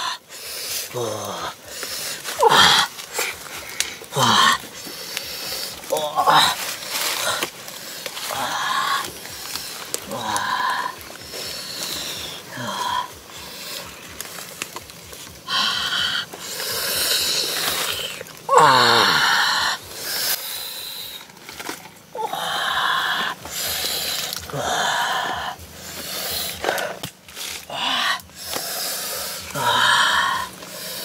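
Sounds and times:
man's hissing breaths: 0.0s - 14.5s, 22.4s - 31.0s.

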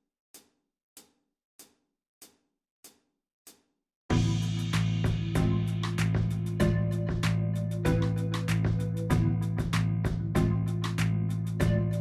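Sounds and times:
backing track with drum kit: 4.1s - 12.0s.

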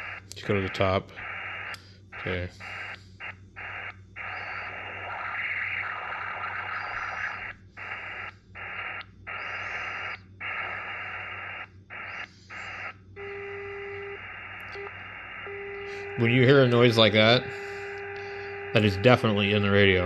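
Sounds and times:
loud radio hiss: 0.0s - 20.0s
steady low whistle: 12.0s - 19.8s.

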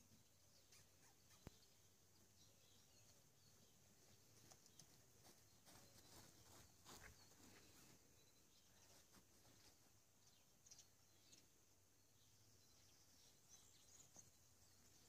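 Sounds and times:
faint bird chirps: 0.0s - 15.0s
soft footsteps on grass: 2.9s - 10.6s
puppy paw steps on grass: 4.0s - 10.0s.

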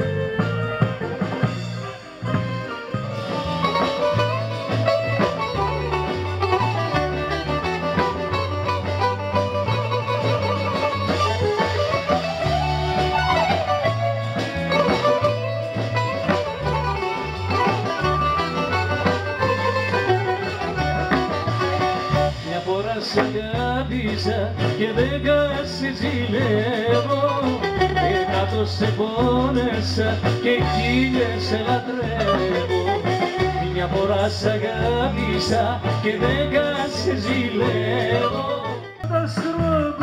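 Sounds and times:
bass notes: 0.0s - 40.0s
bouzouki melody with sliding runs: 0.2s - 22.5s.

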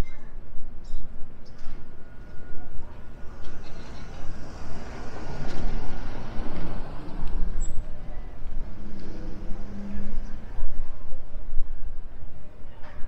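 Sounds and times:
motor vehicle passing: 3.1s - 10.8s.

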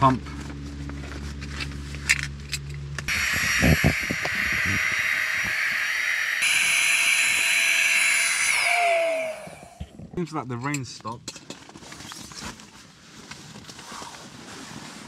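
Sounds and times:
electric air pump motor whine: 3.1s - 10.0s.

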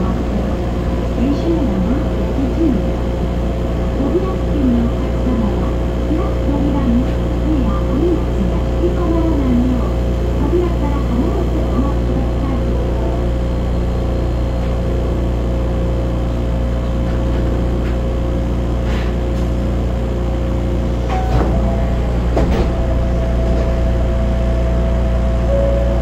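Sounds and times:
low hum with high whine: 0.0s - 26.0s
steady tone: 21.1s - 26.0s.

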